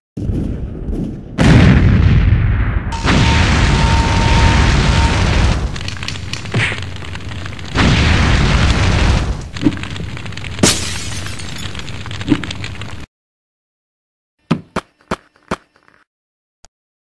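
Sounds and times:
cartoon explosion blast: 1.4s - 5.8s, 7.7s - 9.5s
crackling fire roar: 2.8s - 10.6s, 11.6s - 13.0s.

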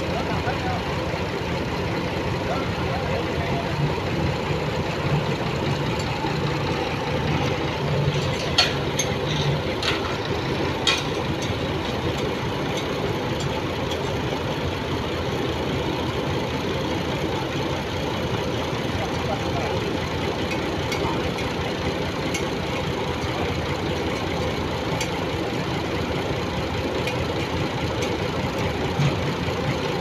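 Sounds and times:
tractor engine idling: 0.0s - 30.0s
sharp clanks: 7.4s - 14.2s.

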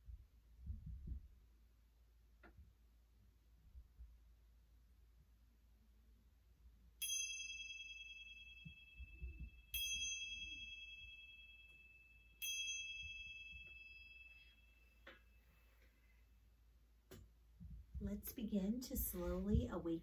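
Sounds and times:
small high-pitched chime: 7.0s - 16.1s.

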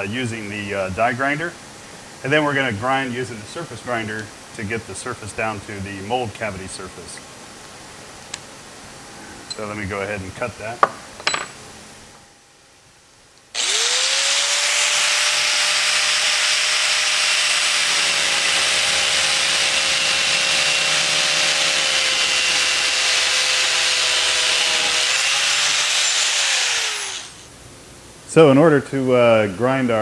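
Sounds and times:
angle grinder cutting steel: 13.6s - 27.4s.

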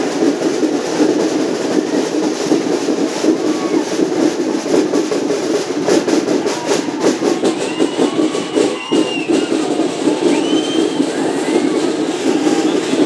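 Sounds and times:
crowd noise: 0.0s - 13.0s
fast drum beating: 0.0s - 13.0s
rising and falling whistles: 7.3s - 13.0s.

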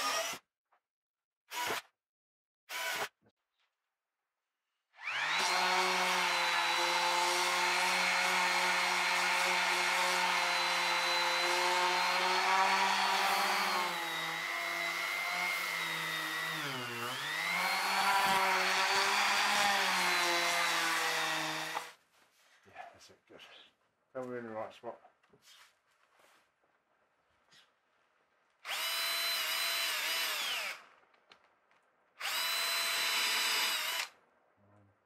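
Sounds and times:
electric drill whining: 5.0s - 22.0s, 28.6s - 30.8s, 32.2s - 34.2s.

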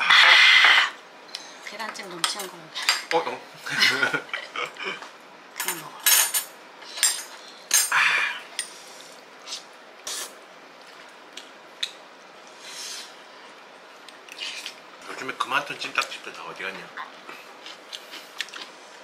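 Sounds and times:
utensils clinking on ceramic plates: 5.6s - 8.0s.

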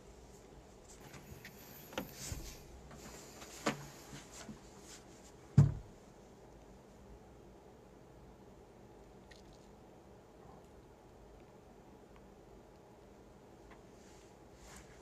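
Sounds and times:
faint rustling: 0.2s - 5.6s
dull knocks: 5.6s - 5.9s.

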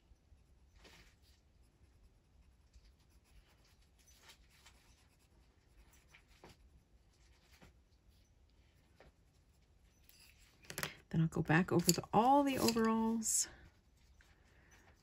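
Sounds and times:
pencil scratching on paper: 1.8s - 6.6s.

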